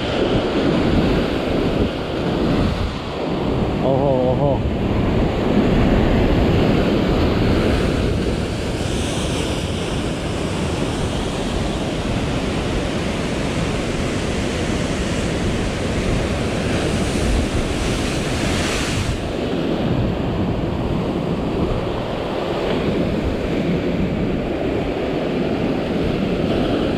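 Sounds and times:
heavy surf breaking on rocks: 0.0s - 26.9s
wind buffeting microphone: 0.0s - 26.9s.

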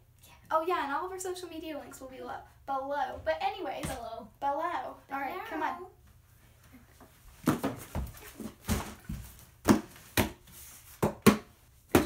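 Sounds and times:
cardboard box knocks and thumps: 7.4s - 10.4s.

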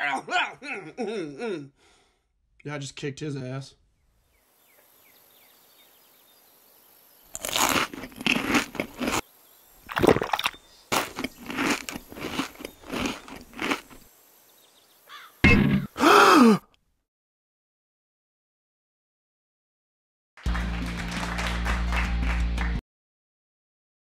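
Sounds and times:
crunching seeds being eaten: 7.3s - 9.2s, 9.8s - 14.1s.

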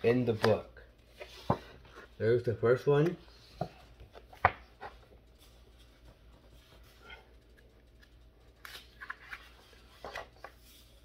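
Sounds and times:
paper pages rustling: 8.6s - 11.0s.

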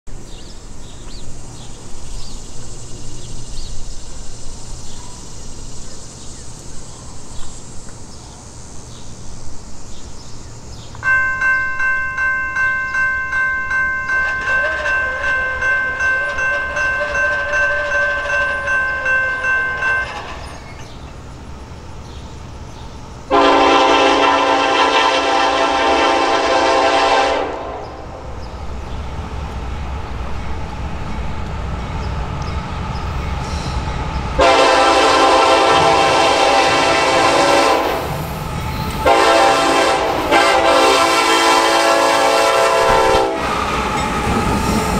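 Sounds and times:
railroad crossing bell ringing: 11.0s - 21.3s, 38.6s - 44.9s.

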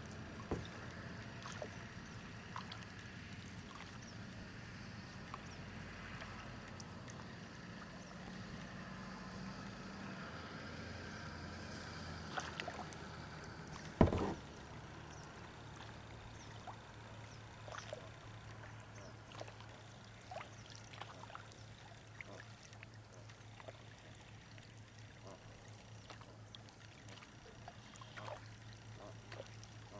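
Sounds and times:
water lapping against kayak: 0.0s - 9.9s, 10.8s - 29.9s
small drips and ticks: 0.0s - 14.0s, 14.6s - 29.9s
sharp knock: 14.0s - 14.4s.

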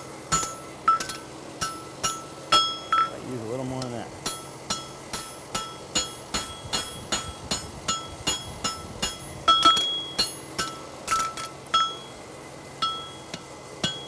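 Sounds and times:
hammer ringing on anvil: 0.0s - 3.2s, 4.2s - 12.2s, 12.8s - 14.0s.

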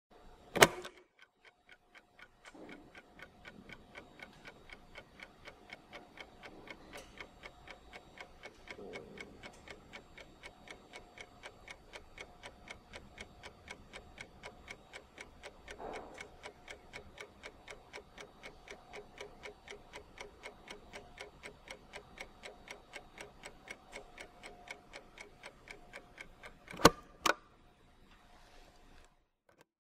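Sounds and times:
stopwatch ticking fast: 0.6s - 27.1s
stopwatch button clicks: 26.4s - 27.4s.

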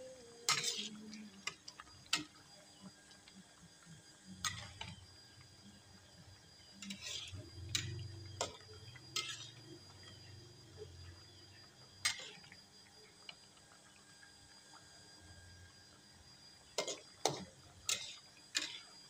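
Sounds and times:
metal spoon scraping a pot: 0.5s - 2.3s, 6.8s - 10.2s, 12.0s - 12.4s, 16.8s - 18.9s.

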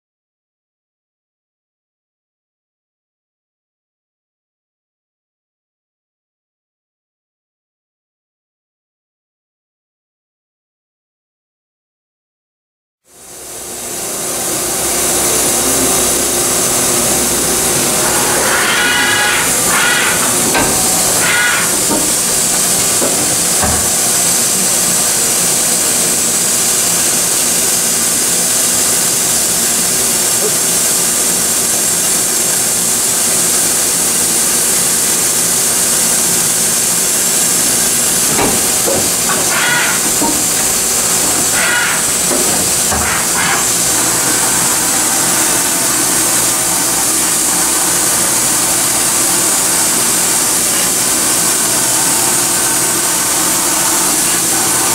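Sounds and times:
machine rushing air hiss: 13.2s - 32.3s, 33.0s - 54.9s.

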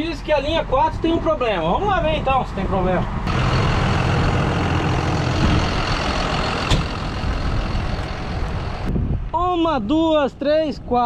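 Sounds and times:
tractor diesel engine running: 3.2s - 8.9s.

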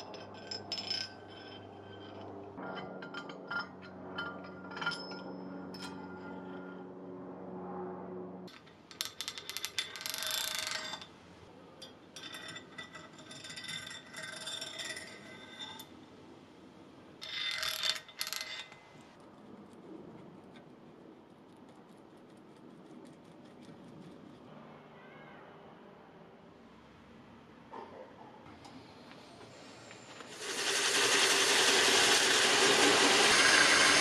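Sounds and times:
steel vice parts clinking and scraping: 0.0s - 6.8s, 8.5s - 11.1s, 11.8s - 15.9s, 17.2s - 19.0s.

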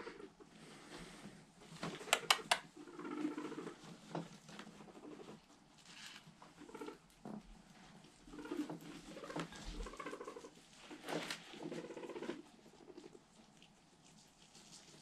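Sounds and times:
guinea pigs moving in bedding: 0.0s - 15.0s
sharp clicks: 2.0s - 2.7s
guinea pig low calls: 2.0s - 5.7s, 6.3s - 15.0s.

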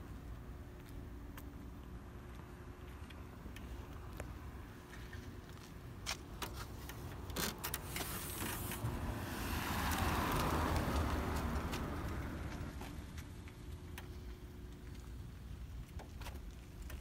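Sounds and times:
vehicle passing: 8.2s - 13.2s.

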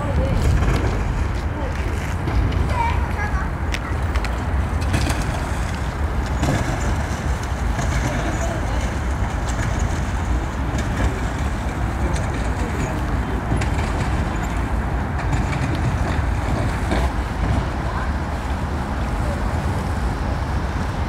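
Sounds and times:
boat motor rumble: 0.0s - 21.0s
wind noise: 0.0s - 21.0s.

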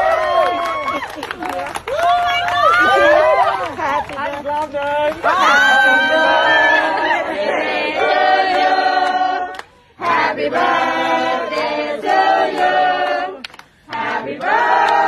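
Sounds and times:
choir singing: 5.3s - 15.0s.

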